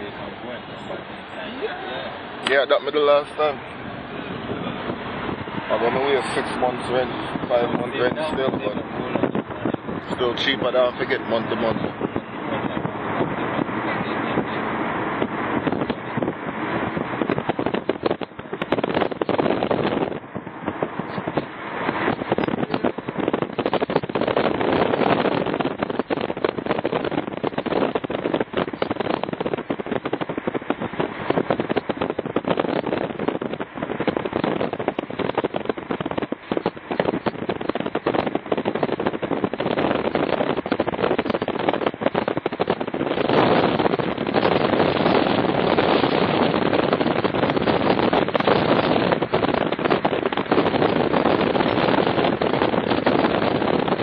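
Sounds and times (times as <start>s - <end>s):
car ride noise: 0.0s - 54.0s
wind buffeting microphone: 0.0s - 54.0s.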